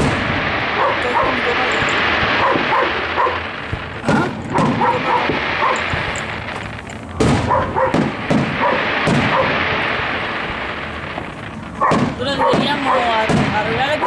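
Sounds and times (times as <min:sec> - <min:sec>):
fireworks bursting with bangs: 0:00.0 - 0:14.0
dog barking: 0:00.8 - 0:01.5, 0:02.3 - 0:03.5, 0:04.5 - 0:05.9, 0:07.4 - 0:09.6, 0:11.8 - 0:13.1.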